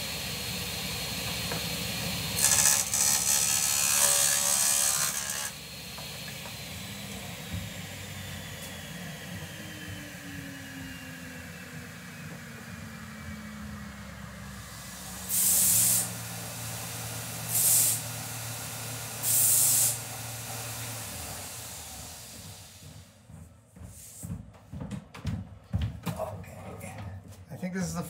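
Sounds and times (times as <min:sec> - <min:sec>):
gas hissing blasts: 0:14.8 - 0:22.9
footsteps: 0:22.3 - 0:28.0.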